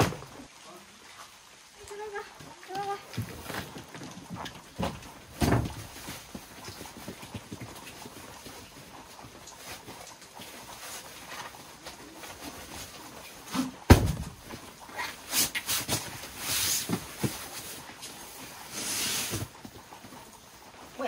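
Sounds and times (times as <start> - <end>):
camping mat thumping on wooden floor: 3.2 - 6.4, 13.6 - 14.7.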